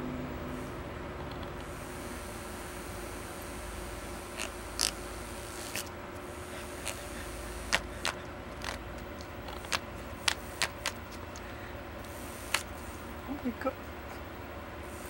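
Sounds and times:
toy fan motor hum: 0:00.0 - 0:15.0.

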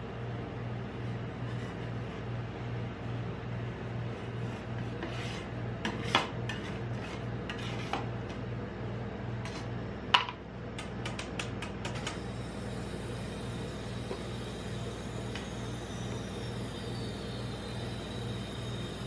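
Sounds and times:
steady low hum: 0:00.0 - 0:19.0
metal spatulas scraping steel plate: 0:05.0 - 0:08.1.

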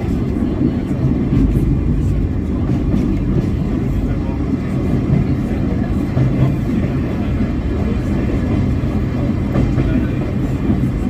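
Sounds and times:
train wheels rumbling: 0:00.0 - 0:11.0.

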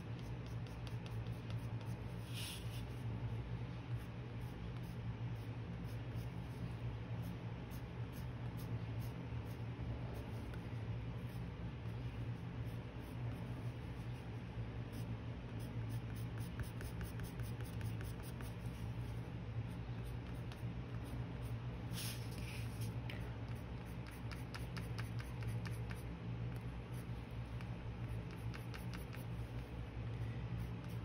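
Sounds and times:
pencil scratching on paper: 0:00.0 - 0:03.0, 0:14.9 - 0:21.2, 0:22.0 - 0:26.0, 0:28.0 - 0:29.7
steady low hum: 0:00.0 - 0:31.0.

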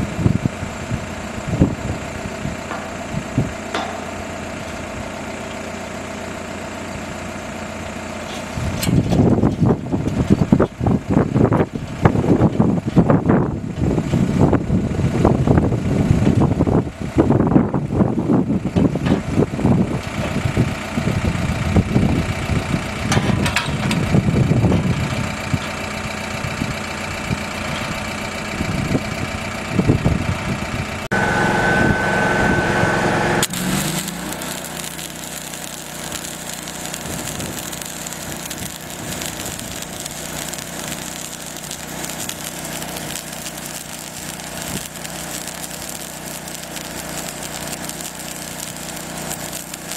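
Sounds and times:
engine running unevenly: 0:00.0 - 0:49.9
welding arc crackling: 0:31.0 - 0:49.9.

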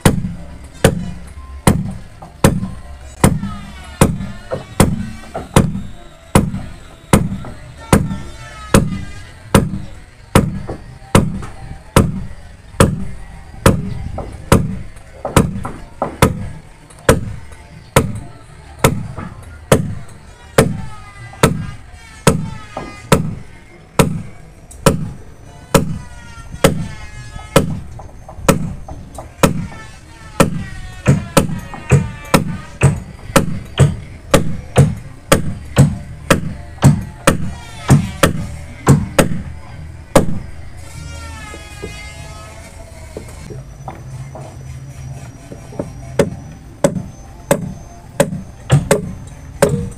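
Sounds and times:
hammer striking iron rod: 0:00.0 - 0:17.4, 0:18.0 - 0:26.0, 0:30.4 - 0:39.5, 0:45.7 - 0:49.9.

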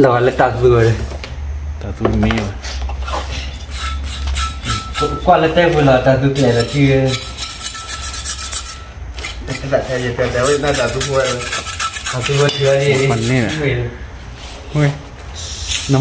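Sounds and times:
rasping scraping strokes: 0:03.0 - 0:14.7, 0:15.4 - 0:16.0
man talking: 0:12.1 - 0:14.0.

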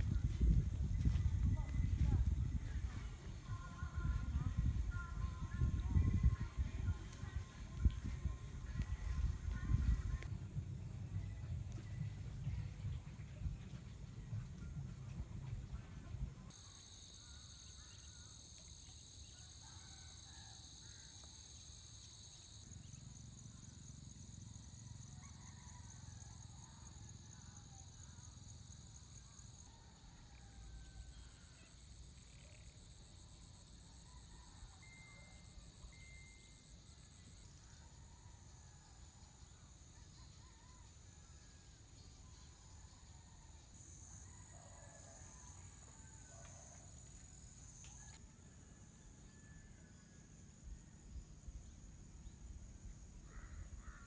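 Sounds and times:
insects trilling: 0:16.5 - 0:40.9.

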